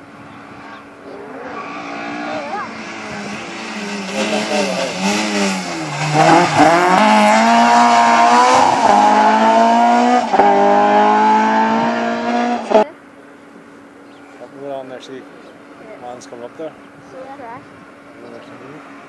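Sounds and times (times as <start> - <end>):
rally car engine revving: 0.0 - 12.9.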